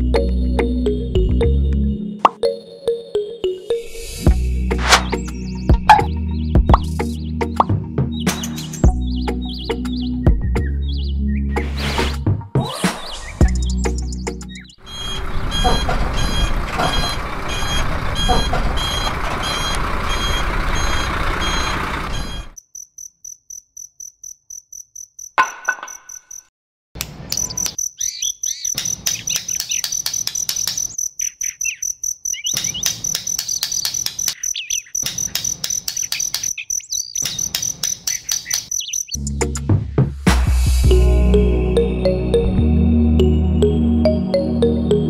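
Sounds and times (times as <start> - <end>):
crickets chirping: 22.6 - 26.5, 27.4 - 39.2
fine clicks: 28.8 - 31.0.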